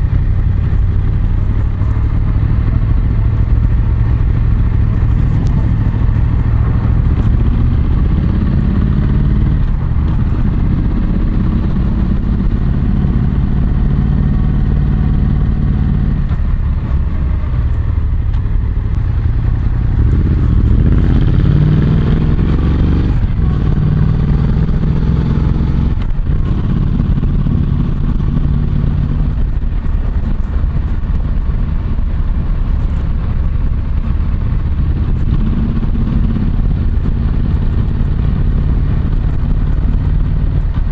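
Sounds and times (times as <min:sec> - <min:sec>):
motorcycle engine: 0:00.0 - 0:40.9.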